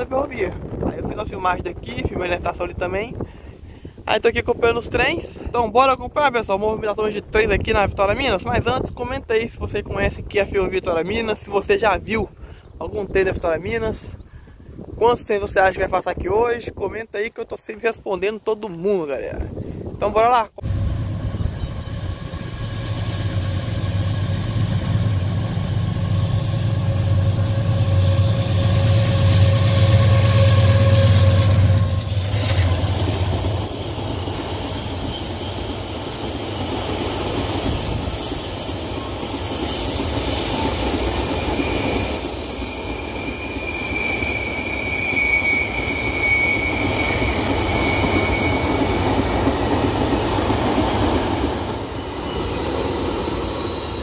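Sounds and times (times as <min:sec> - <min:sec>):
wagons rumbling on rails: 0:20.6 - 0:54.0
high-pitched wheel squeal: 0:25.1 - 0:49.0, 0:51.7 - 0:54.0.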